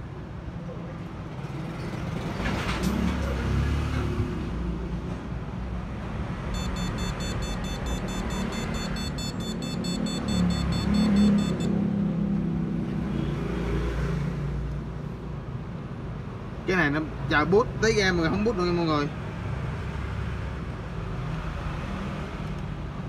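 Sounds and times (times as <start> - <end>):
street traffic rumble: 0.0 - 23.0
short high electronic beeps: 6.6 - 11.7.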